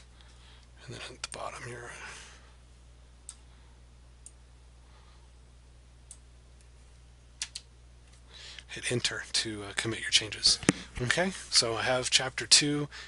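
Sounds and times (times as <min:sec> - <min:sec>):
low electrical hum: 0:00.0 - 0:13.0
computer mouse clicking: 0:07.4 - 0:07.7.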